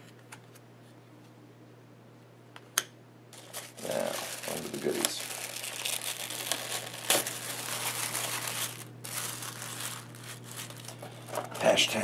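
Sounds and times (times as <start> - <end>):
tissue paper crinkling: 3.4 - 11.7.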